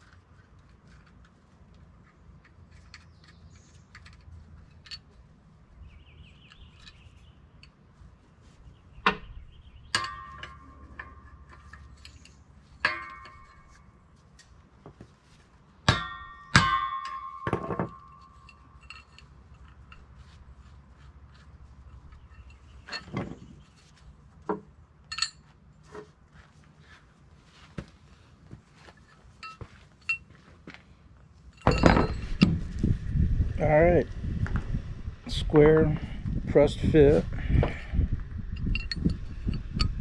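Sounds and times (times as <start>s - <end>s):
hammer striking steel: 9.9s - 11.3s, 15.8s - 18.5s
light metal knocks and clinks: 16.0s - 20.6s, 21.3s - 23.8s, 24.5s - 26.1s, 28.8s - 30.8s, 31.4s - 32.7s, 38.6s - 40.0s.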